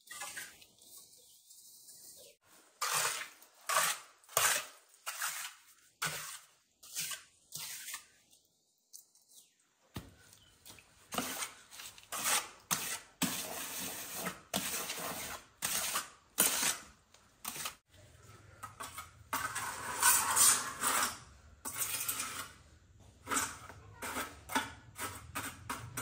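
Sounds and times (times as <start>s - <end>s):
hard objects scraping: 11.1s - 26.0s.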